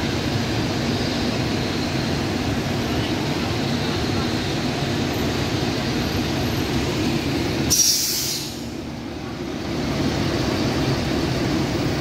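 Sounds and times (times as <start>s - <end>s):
bus engine idling: 0.0s - 12.0s
air brakes hiss: 7.7s - 8.8s.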